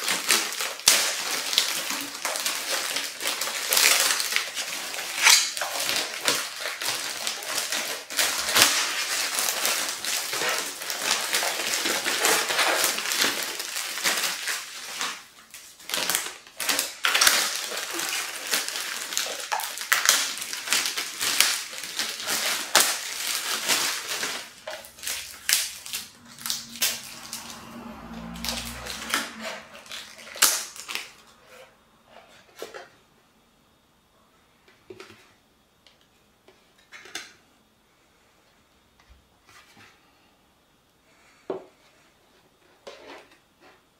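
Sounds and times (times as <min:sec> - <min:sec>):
plastic wrap crinkling: 0:00.0 - 0:31.7.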